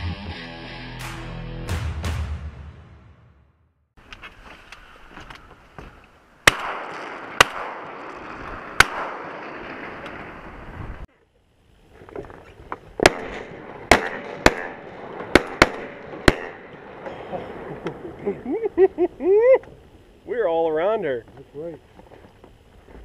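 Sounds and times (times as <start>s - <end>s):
shotgun shots: 6.4s - 10.0s, 13.0s - 17.0s.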